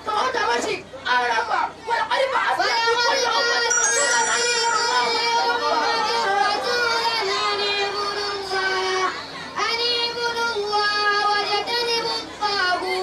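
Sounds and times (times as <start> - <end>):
boy chanting into a microphone: 6.7 - 13.0.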